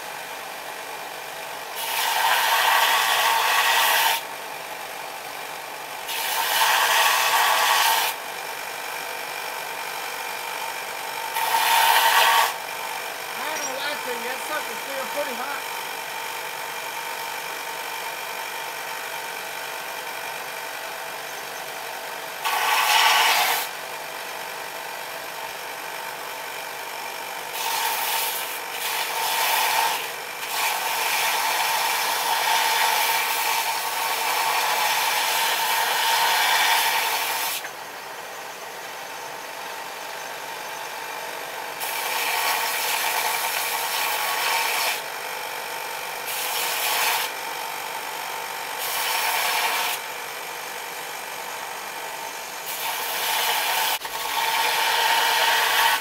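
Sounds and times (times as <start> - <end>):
steel grinding on belt: 1.8 - 4.3, 6.0 - 8.2, 11.3 - 12.6, 13.3 - 16.0, 22.4 - 23.7, 27.5 - 37.7, 41.8 - 45.1, 46.3 - 47.4, 48.7 - 50.0, 52.6 - 56.0
belt grinder humming: 11.1 - 17.4, 22.4 - 23.8, 52.6 - 56.0.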